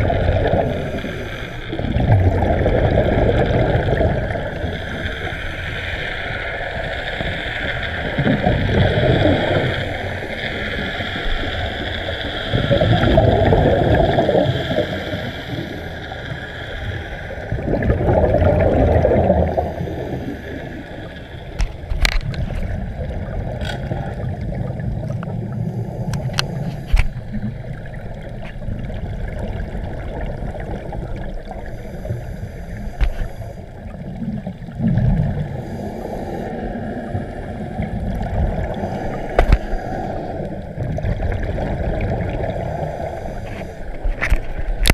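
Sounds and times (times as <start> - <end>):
regulator exhalation bubbles: 17.5 - 20.5.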